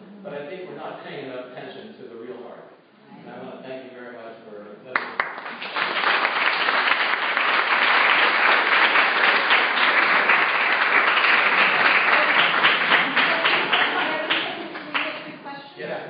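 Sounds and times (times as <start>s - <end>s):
audience applauding: 5.0s - 15.3s.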